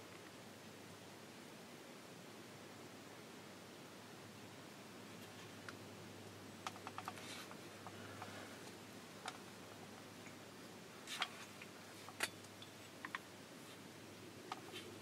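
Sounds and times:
low steady hum: 0.0s - 15.0s
faint clicks and ticks: 5.2s - 10.4s.

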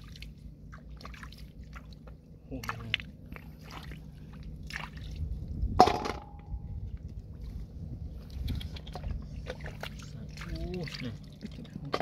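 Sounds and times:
steel basin clanking: 5.8s - 6.6s.

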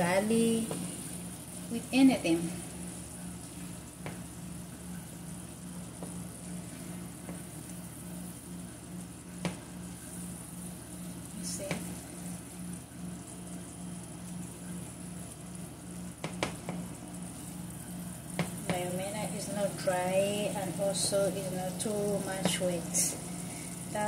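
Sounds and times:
stew sizzling in a frying pan: 0.0s - 24.0s.

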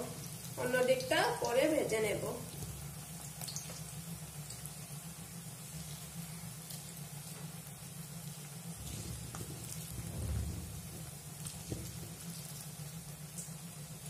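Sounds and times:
oil sizzling with pops: 0.0s - 14.0s
low rumble: 8.9s - 12.1s.

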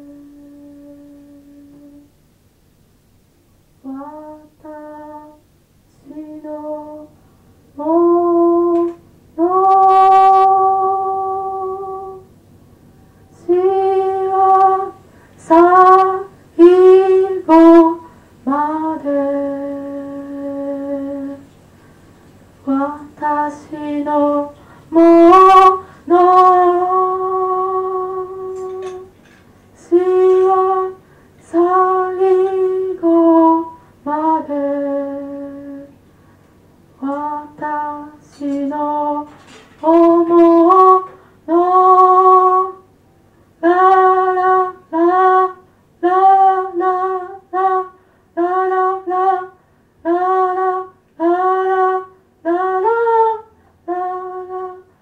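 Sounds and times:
faint low hum: 0.0s - 55.0s
high voice singing: 7.8s - 12.3s, 13.3s - 21.5s, 22.6s - 29.1s, 29.8s - 36.0s.

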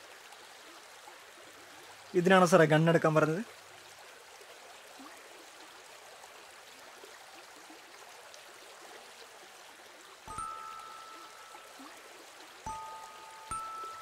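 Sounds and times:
outdoor ambience hiss: 0.0s - 14.0s
held two-note film score tone: 10.3s - 14.0s.

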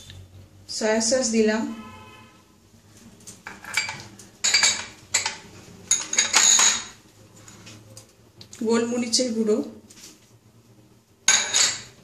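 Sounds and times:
spoon clinking on glass bowls: 3.5s - 7.0s, 11.3s - 12.0s.

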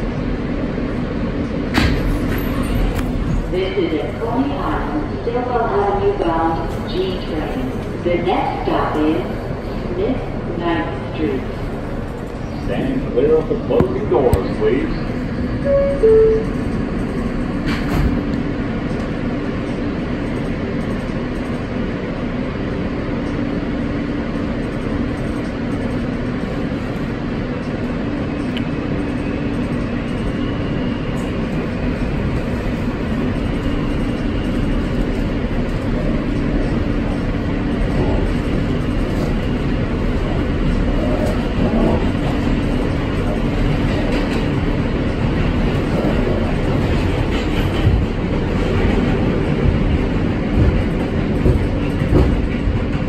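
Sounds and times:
train wheels and traction motors: 0.0s - 53.0s.

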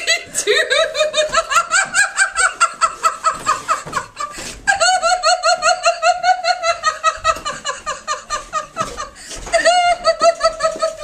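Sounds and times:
woman laughing: 0.0s - 11.0s
woman gasping: 9.1s - 9.6s.

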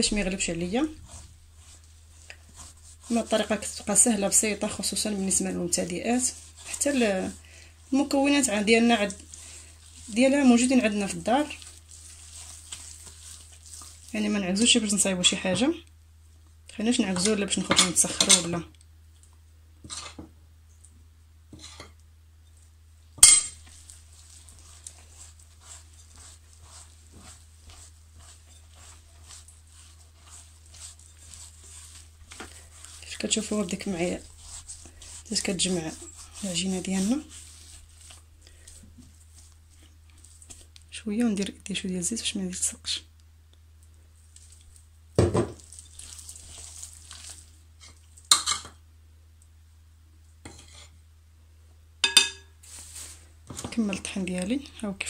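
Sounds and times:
hand kneading wet dough: 0.0s - 19.4s, 22.5s - 42.8s, 43.6s - 48.4s, 52.6s - 55.0s
metal spoon clinking on glass bowl: 23.2s - 23.6s, 52.0s - 52.5s.

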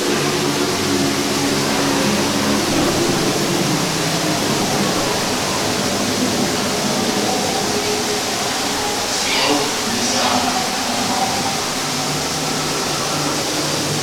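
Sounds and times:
rushing water: 0.0s - 14.0s.

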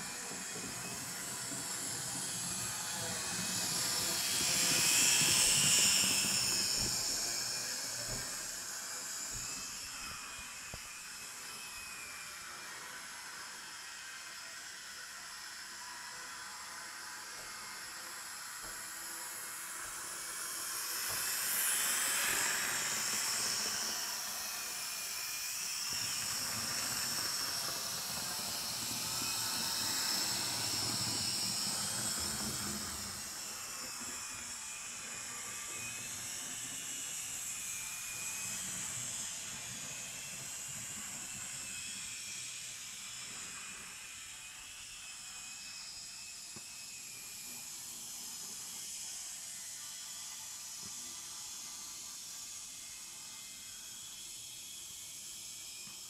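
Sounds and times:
model train motor whine: 0.0s - 56.0s.

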